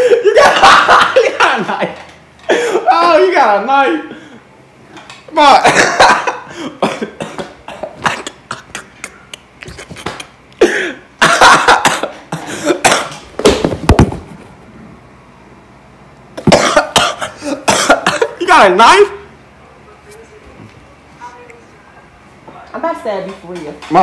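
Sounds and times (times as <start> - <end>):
man laughing and coughing: 0.0 - 2.9, 5.5 - 13.2, 16.4 - 18.4.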